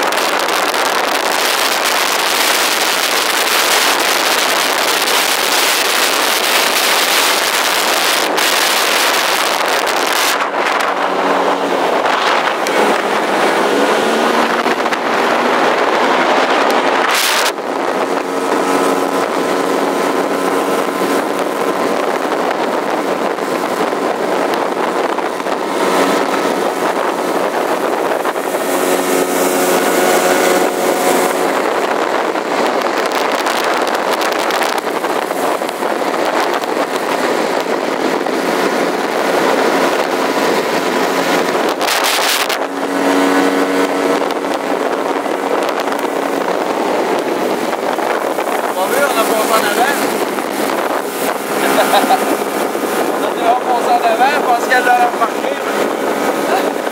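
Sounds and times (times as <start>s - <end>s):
motorboat engine running: 0.0s - 56.9s
rush of wind and water: 0.0s - 56.9s.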